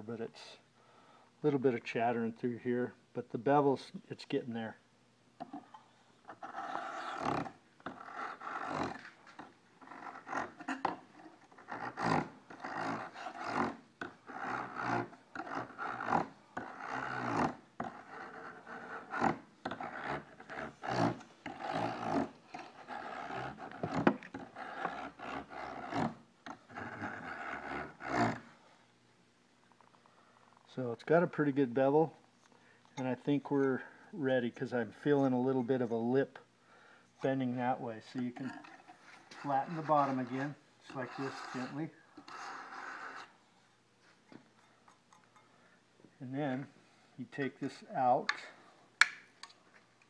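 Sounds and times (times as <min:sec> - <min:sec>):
blade filing strokes: 0:06.3 - 0:28.4, 0:38.4 - 0:43.4.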